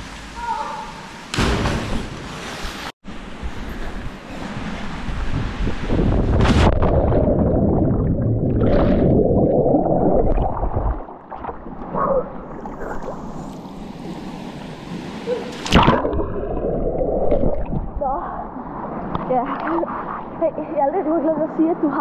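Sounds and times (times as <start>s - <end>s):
underwater bubbles rushing: 5.9s - 13.8s, 15.7s - 18.0s.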